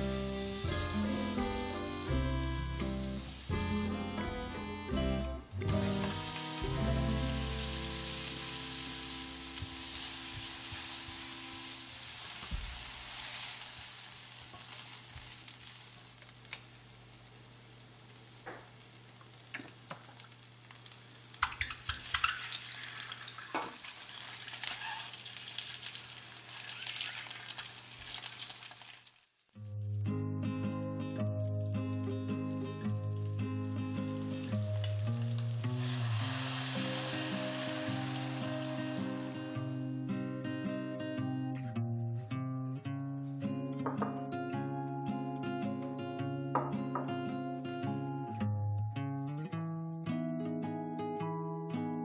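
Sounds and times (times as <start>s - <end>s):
onion and garlic sizzling in oil: 0.0s - 4.4s, 5.7s - 29.4s, 33.9s - 39.8s.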